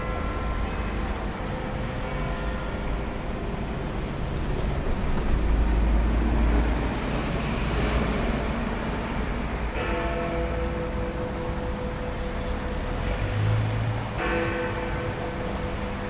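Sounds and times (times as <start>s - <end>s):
clock tower bells ringing: 0.0s - 3.5s, 9.7s - 16.0s
heavy vehicle rumble: 0.0s - 16.0s
road traffic: 0.0s - 16.0s.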